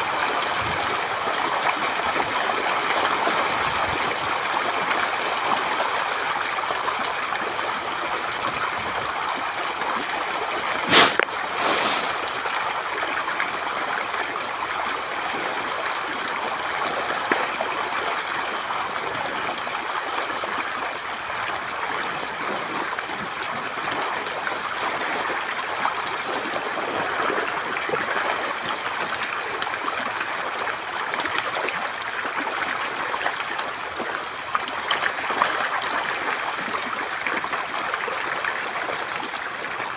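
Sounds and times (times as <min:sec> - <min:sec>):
fish splashing in water: 0:09.2 - 0:13.9.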